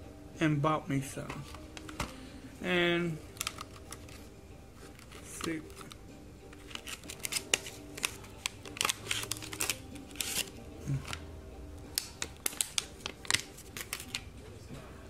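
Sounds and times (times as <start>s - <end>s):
plastic packaging clicking and rustling: 1.3s - 2.2s, 3.3s - 11.2s, 11.9s - 14.3s.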